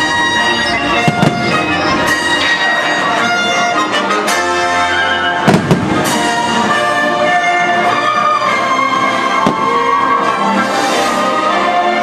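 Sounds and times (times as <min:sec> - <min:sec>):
orchestral music: 0:00.0 - 0:12.0
firework bangs: 0:01.0 - 0:02.2, 0:05.4 - 0:06.4, 0:09.4 - 0:10.2.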